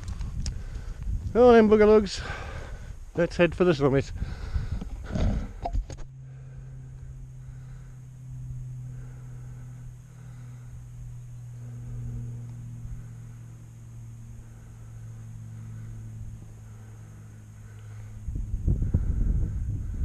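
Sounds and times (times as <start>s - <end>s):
wind rumbling on microphone: 0.0s - 13.3s, 17.6s - 20.0s
steady low hum: 0.0s - 20.0s.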